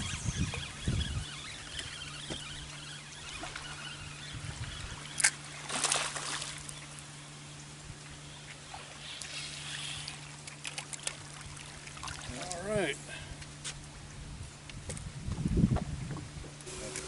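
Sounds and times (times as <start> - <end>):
water splashing and sloshing: 0.0 - 7.2, 8.4 - 13.5
steady low hum: 0.0 - 17.0.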